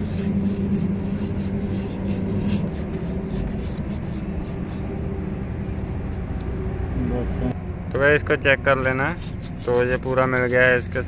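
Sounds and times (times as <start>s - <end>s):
emery paper rubbing metal rod: 0.0s - 4.9s, 9.1s - 11.0s
steady low hum: 0.0s - 11.0s.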